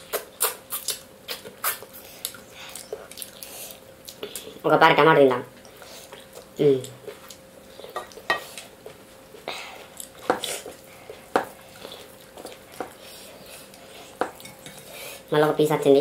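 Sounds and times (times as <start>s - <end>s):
chewing: 0.1s - 4.6s.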